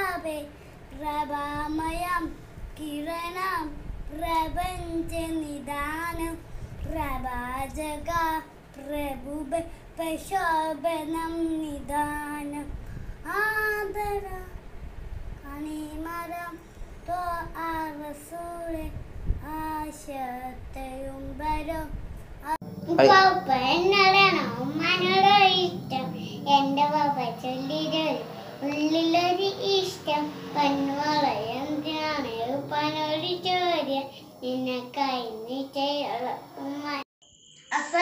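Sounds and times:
boy singing solo: 0:22.8 - 0:37.0.

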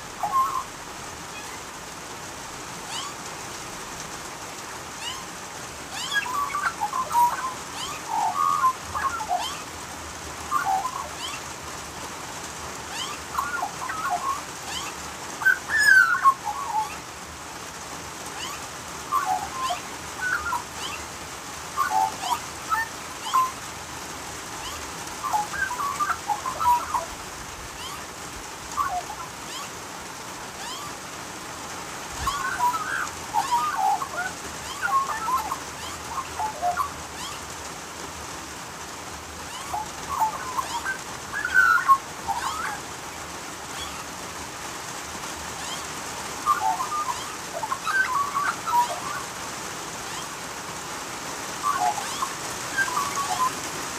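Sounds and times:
rain hissing: 0:00.0 - 0:53.9
magpie calling: 0:00.1 - 0:00.8, 0:02.9 - 0:03.2, 0:05.9 - 0:09.7, 0:10.5 - 0:11.5, 0:12.9 - 0:17.1, 0:18.4 - 0:21.1, 0:21.8 - 0:23.6, 0:24.6 - 0:28.1, 0:28.7 - 0:29.8, 0:30.6 - 0:31.0, 0:32.2 - 0:37.4, 0:39.5 - 0:42.9, 0:45.6 - 0:49.4, 0:50.0 - 0:50.4, 0:51.6 - 0:53.6.

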